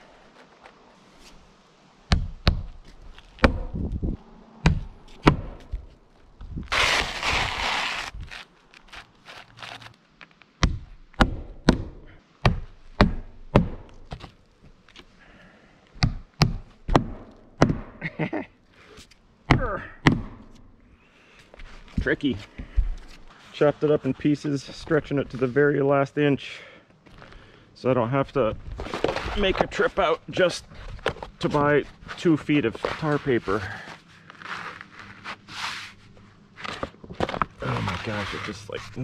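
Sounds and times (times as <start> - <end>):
scraping rustle: 5.0 - 10.4, 28.6 - 39.0.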